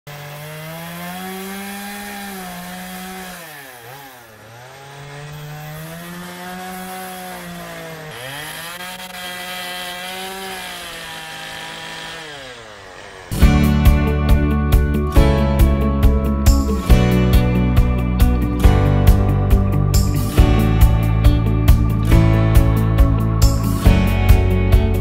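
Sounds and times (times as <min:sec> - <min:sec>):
chainsaw cutting a log: 0:00.1 - 0:19.2.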